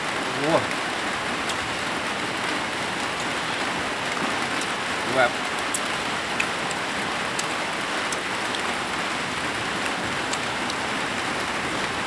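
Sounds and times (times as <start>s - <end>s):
steady rain hiss: 0.0s - 12.0s.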